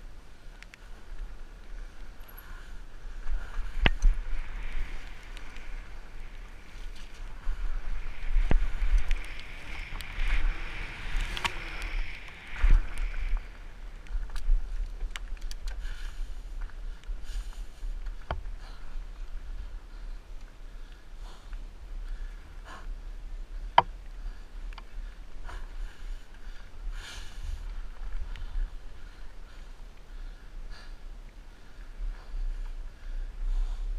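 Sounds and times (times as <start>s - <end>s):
wind rumble on microphone: 0.0s - 33.9s
bike tyres hissing on wet dirt: 0.1s - 30.0s.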